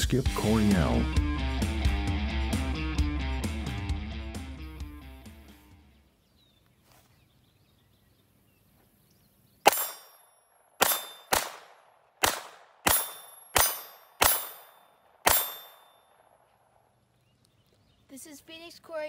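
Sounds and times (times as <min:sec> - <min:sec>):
pistol shots: 0:09.6 - 0:16.5.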